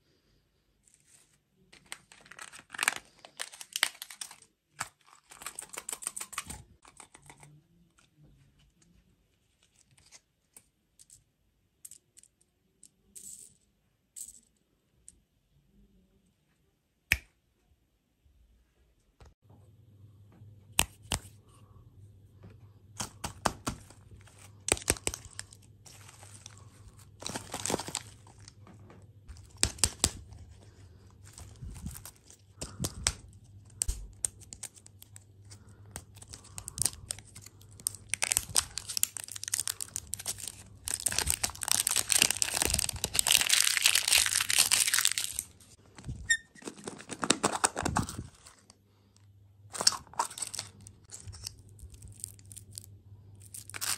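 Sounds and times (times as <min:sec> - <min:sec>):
foil wrapper crinkling and tearing: 0:01.8 - 0:07.2, 0:23.8 - 0:28.6, 0:29.3 - 0:48.7, 0:49.7 - 0:53.9
plastic capsule opening: 0:31.3 - 0:48.7, 0:49.7 - 0:53.9.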